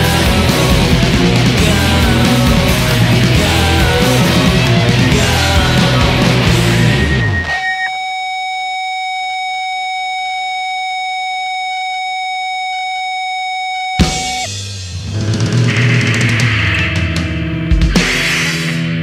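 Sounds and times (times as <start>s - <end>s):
distorted rock music: 0.0s - 8.7s, 13.7s - 19.0s
high electronic tone: 0.0s - 14.6s, 15.2s - 17.2s.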